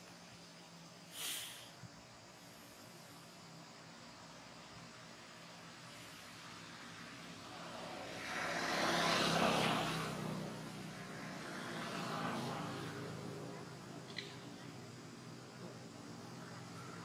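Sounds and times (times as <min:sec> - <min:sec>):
vehicle passing by: 0:05.6 - 0:14.5.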